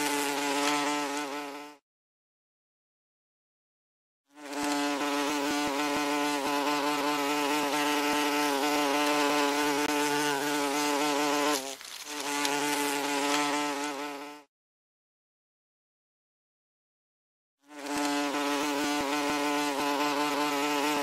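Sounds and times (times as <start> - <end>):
wasp buzzing in flight: 0.0 - 1.8, 4.3 - 14.5, 17.6 - 21.0.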